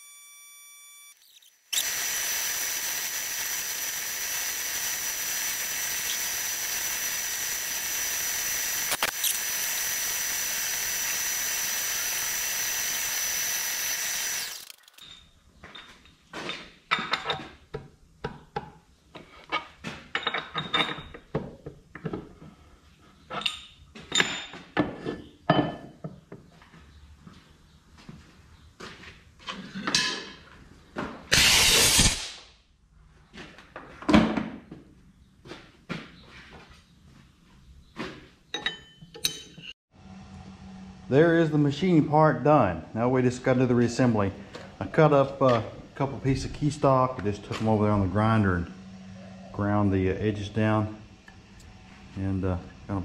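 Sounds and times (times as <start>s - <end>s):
milling machine cutting steel: 1.2s - 15.1s.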